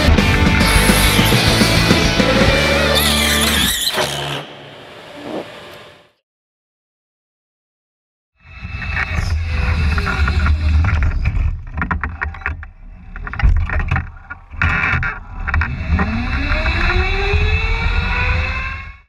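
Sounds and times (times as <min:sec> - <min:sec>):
go-kart engine rumble: 0:09.0 - 0:18.9.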